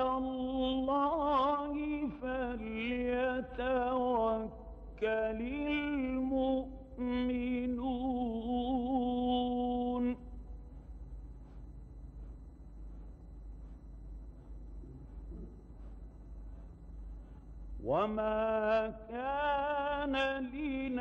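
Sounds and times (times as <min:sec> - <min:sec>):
man chanting melodically: 0:00.0 - 0:10.3, 0:17.8 - 0:21.0.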